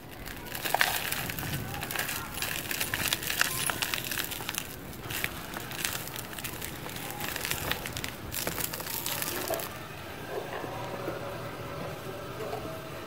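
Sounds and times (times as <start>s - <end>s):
grit pouring into plastic tub: 0.0s - 9.7s
cement lumps crunching in hands: 0.0s - 9.8s.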